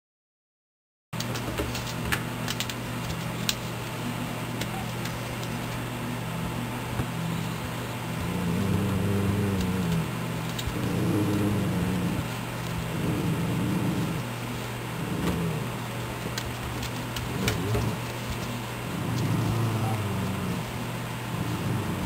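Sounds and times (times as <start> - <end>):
electrical hum: 1.2 - 22.0
dogs growling: 7.4 - 22.0.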